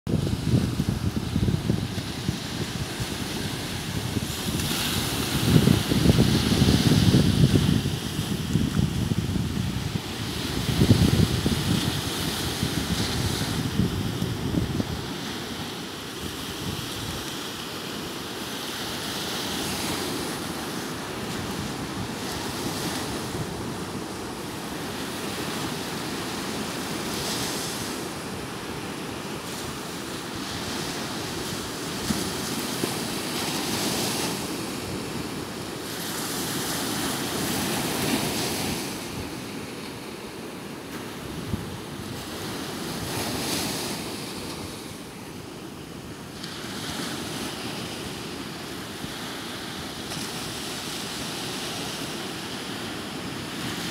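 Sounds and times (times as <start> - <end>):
wind noise on microphone: 0.1 - 39.9, 40.9 - 45.1
waves washing up a beach: 0.1 - 53.9.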